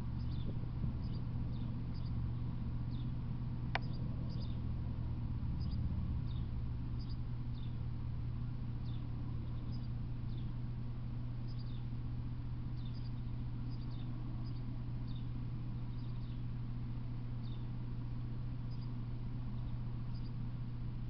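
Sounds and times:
small birds chirping: 0.0 - 21.0
steady low hum: 0.0 - 21.0
sharp click: 3.7 - 4.0.

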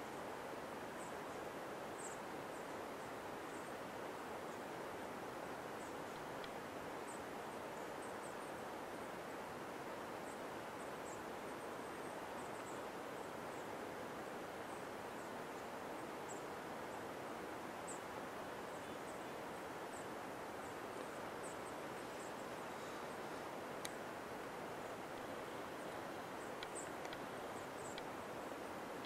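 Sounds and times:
steady hiss: 0.0 - 29.0
faint high chirps: 17.8 - 24.1.

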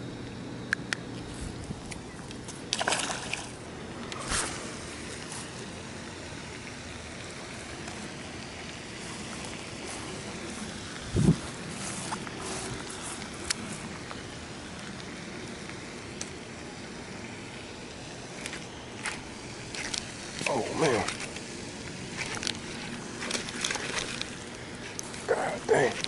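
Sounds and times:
fish splashing into water: 2.7 - 3.6.

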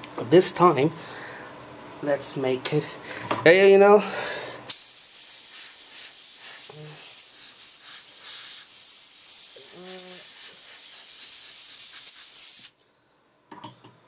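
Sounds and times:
compressed-air blow gun hissing: 4.7 - 12.8.

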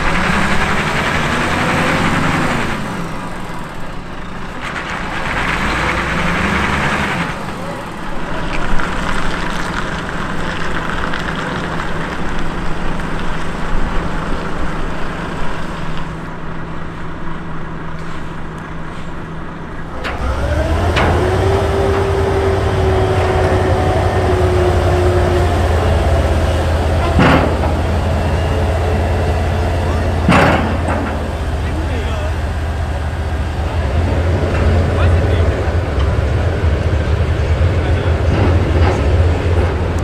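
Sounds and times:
truck diesel engine running: 0.0 - 40.0
steady whine: 12.6 - 40.0.

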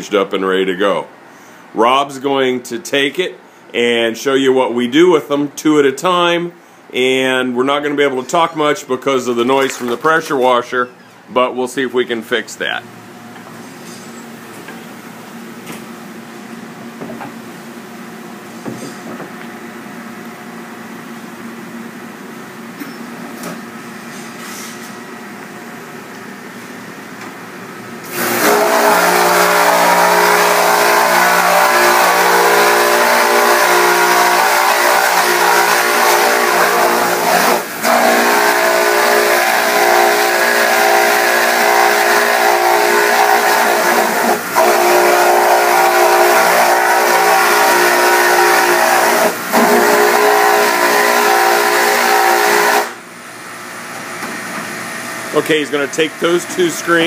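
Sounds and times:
pressure washer pump humming: 28.0 - 57.0.

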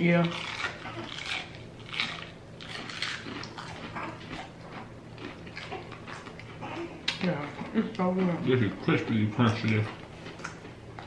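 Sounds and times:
chewing crispy fried food: 0.0 - 11.0.

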